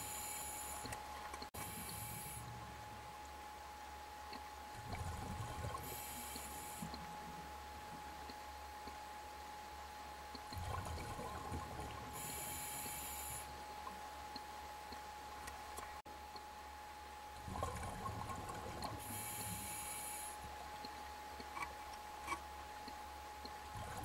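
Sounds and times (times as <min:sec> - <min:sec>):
faint steady tone: 0:00.0 - 0:24.0
regulator inhalation hiss: 0:12.2 - 0:13.5, 0:19.1 - 0:20.4.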